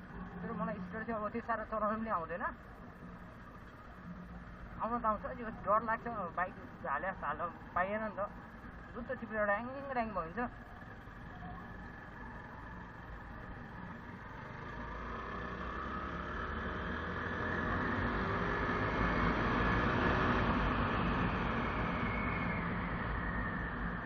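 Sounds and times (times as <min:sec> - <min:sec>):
motorcycle speeding up: 0:10.6 - 0:24.0.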